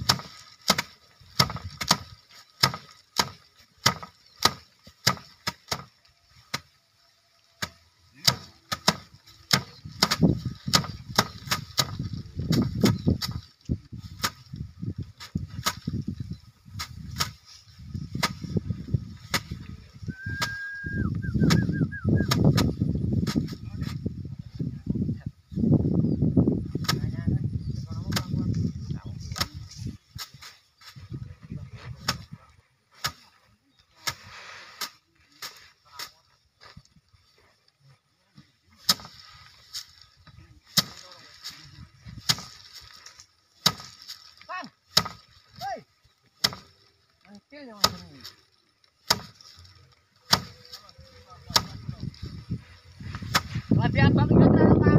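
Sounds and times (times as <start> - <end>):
rice stalks whacking wooden rack: 0.0 - 24.1, 26.7 - 27.2, 27.8 - 37.4, 38.4 - 54.4
straw rustling: 0.0 - 24.7, 26.6 - 54.9.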